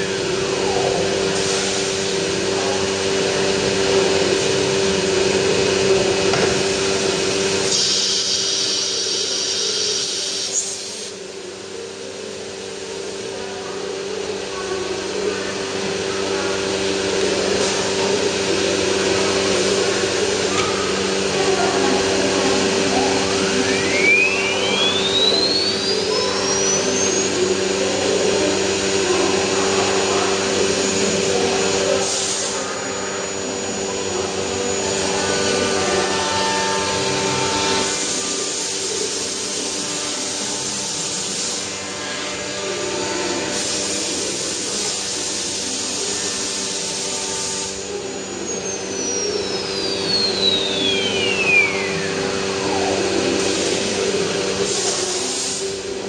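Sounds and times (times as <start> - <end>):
router spindle whine: 0.0 - 56.0
dust extraction rushing air: 46.4 - 56.0.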